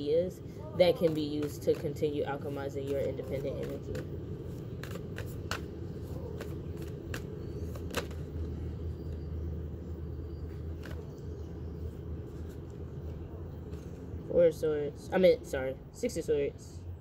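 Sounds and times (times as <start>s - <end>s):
low outdoor rumble: 0.0s - 17.0s
cards being shuffled: 1.0s - 8.5s, 10.6s - 11.2s
card snaps: 6.4s - 8.2s.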